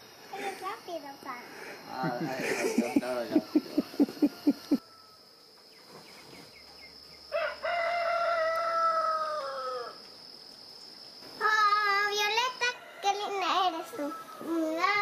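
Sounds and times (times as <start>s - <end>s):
rooster crowing: 3.3s - 5.4s, 7.3s - 10.0s, 12.4s - 14.9s.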